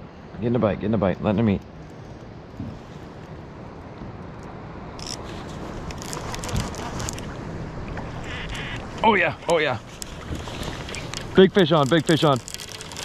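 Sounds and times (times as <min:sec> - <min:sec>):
wind and water hiss: 0:00.0 - 0:13.0
light clicks and scrapes: 0:05.0 - 0:07.4, 0:08.2 - 0:13.0.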